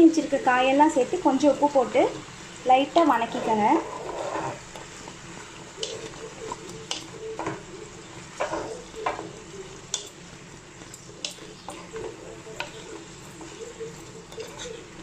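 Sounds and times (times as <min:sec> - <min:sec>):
vegetables sizzling in oil: 0:00.0 - 0:15.0
spatula scraping a pan: 0:02.9 - 0:10.1, 0:10.8 - 0:15.0.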